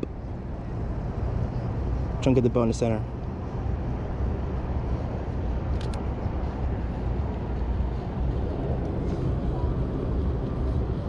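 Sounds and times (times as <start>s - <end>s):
steady low rumble: 0.0s - 11.0s
camera shutter clicks: 5.7s - 6.0s.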